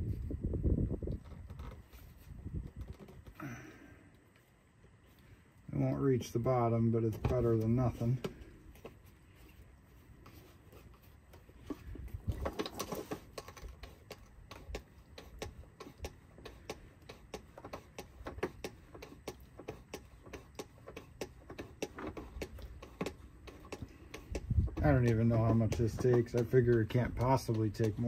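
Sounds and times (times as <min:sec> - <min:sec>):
hand pump clicking: 0:12.4 - 0:28.0.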